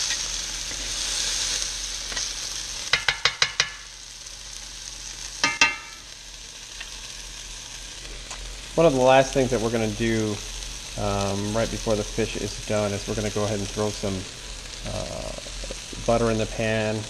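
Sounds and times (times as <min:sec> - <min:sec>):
fish sizzling in a skillet: 0:00.0 - 0:17.0
spatula tapping a pan: 0:02.9 - 0:03.9, 0:05.4 - 0:06.0
ringing metal clank: 0:05.4 - 0:06.0.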